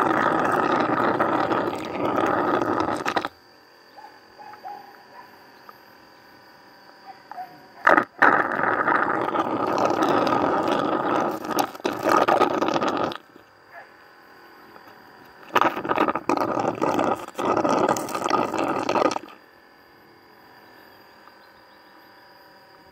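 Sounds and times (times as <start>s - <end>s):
slurping through a straw: 0.0s - 3.4s, 7.8s - 13.4s, 15.4s - 19.4s.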